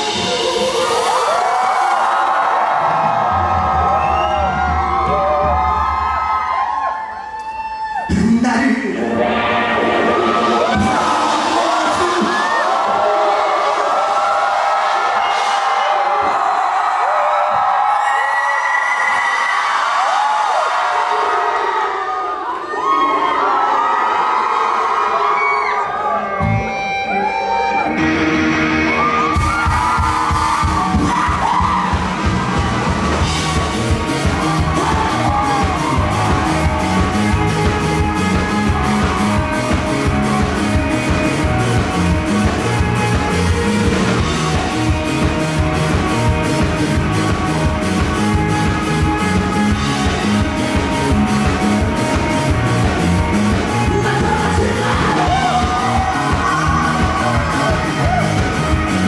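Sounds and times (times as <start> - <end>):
rock band playing live: 0.0 - 6.7, 7.4 - 18.0, 26.1 - 59.0
crowd shouting: 0.0 - 8.2, 9.0 - 59.0
person singing: 8.8 - 13.7, 53.6 - 58.9.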